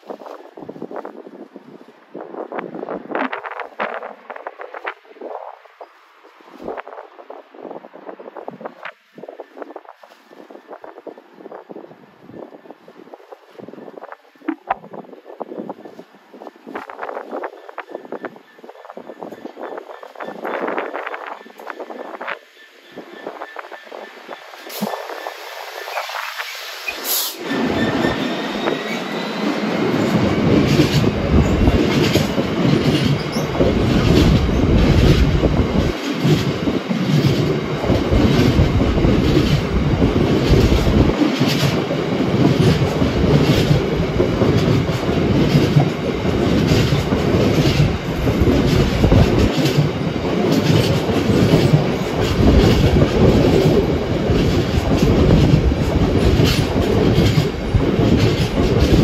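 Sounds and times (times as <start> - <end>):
train rumble: 0.0 - 59.0
train wheels clicking over rail joints: 16.7 - 59.0
faint wheel squeal: 17.4 - 29.4.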